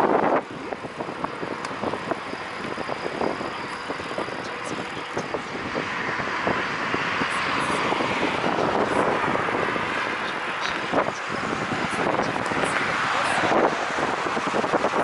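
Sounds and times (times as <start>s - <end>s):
bicycle tyres on pavement: 0.0s - 15.0s
wind rushing: 0.0s - 15.0s.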